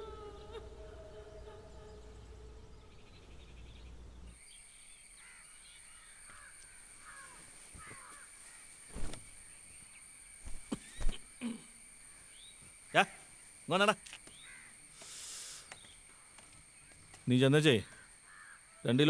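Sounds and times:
high-pitched insect drone: 0.0 - 3.3
falling bird calls: 5.2 - 19.0.

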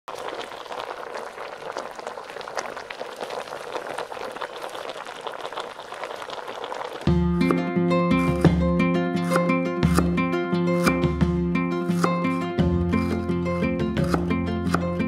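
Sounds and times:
soup bubbling at a simmer: 0.1 - 7.6.

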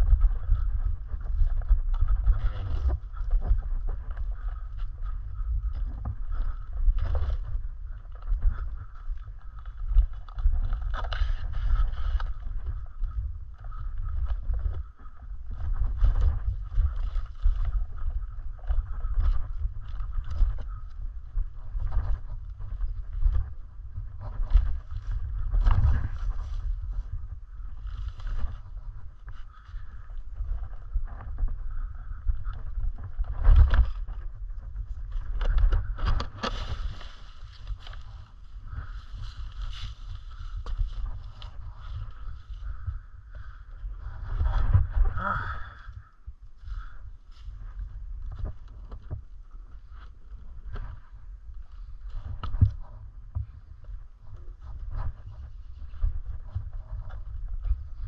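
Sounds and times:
bike riding low rumble: 0.0 - 58.0
wind on microphone: 0.0 - 58.0
bike rattles and knocks: 32.5 - 43.0
tyre rolling over dirt and twigs: 34.8 - 42.8
crunching scrapes: 35.0 - 42.9.

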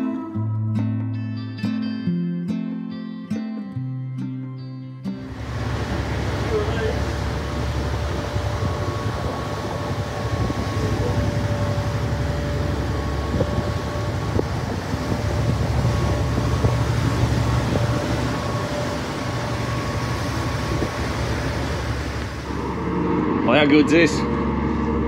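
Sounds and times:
boat engine running: 5.2 - 25.0.

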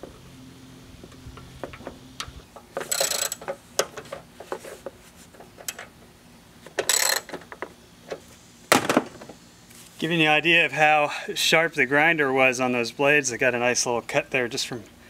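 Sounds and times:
ratchet wrench clicking: 2.2 - 3.5, 6.8 - 7.3.

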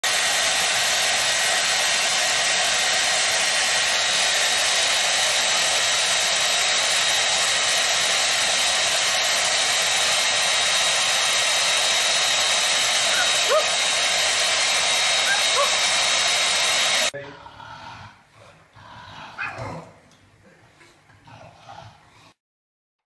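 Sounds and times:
rushing air hiss: 0.0 - 17.1.

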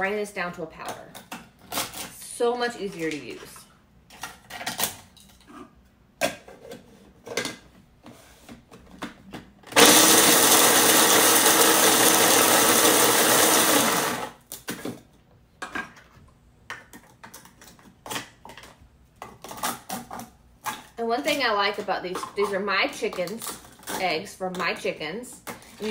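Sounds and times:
food processor grinding: 9.7 - 14.4.

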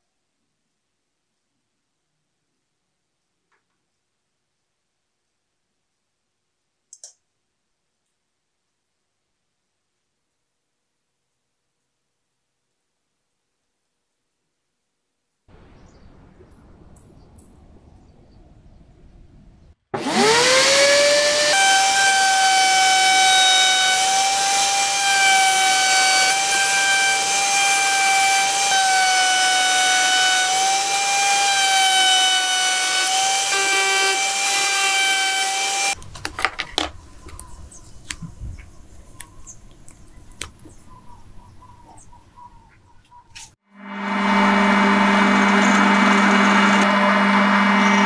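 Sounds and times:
router high whine: 20.0 - 36.0, 43.8 - 48.0
clicks and knocks of pieces handled: 36.0 - 40.8.

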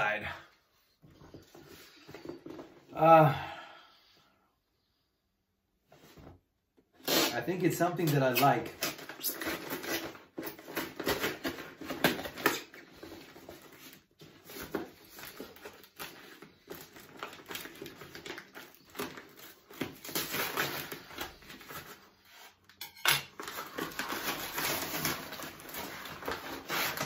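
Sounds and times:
paper rustling and crinkling: 8.0 - 22.7, 23.3 - 27.0.

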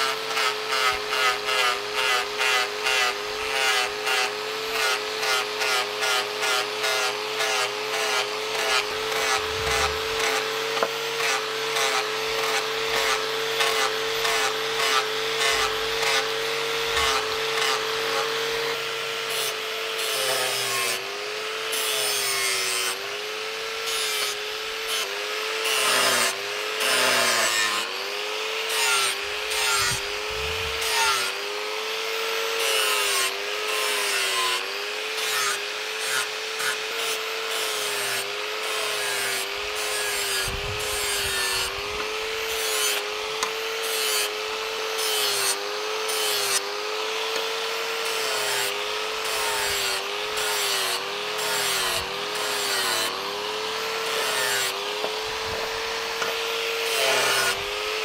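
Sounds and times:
angle grinder motor whine: 0.0 - 58.0
metal being ground: 5.4 - 21.0, 25.7 - 31.6, 39.0 - 58.0.

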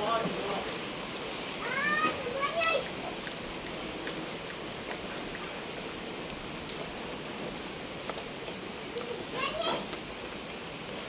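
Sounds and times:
raindrops ticking: 0.0 - 11.0
steady rain falling: 0.0 - 11.0.

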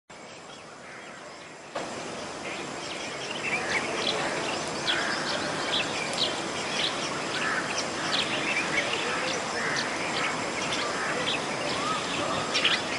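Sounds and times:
birds chirping: 0.1 - 12.9
water rushing: 1.6 - 12.9.

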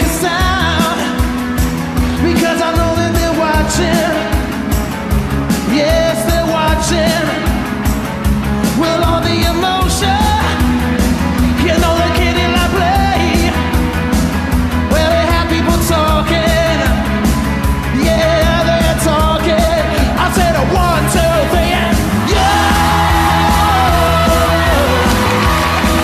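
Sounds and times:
lead vocal singing: 0.0 - 4.9, 5.5 - 7.8, 8.5 - 13.8, 14.9 - 26.0
bass: 0.0 - 26.0
drum beat: 19.7 - 26.0.

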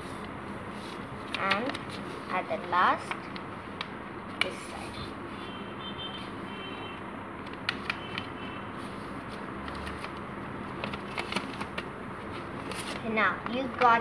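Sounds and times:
paper crinkling: 8.8 - 14.0.

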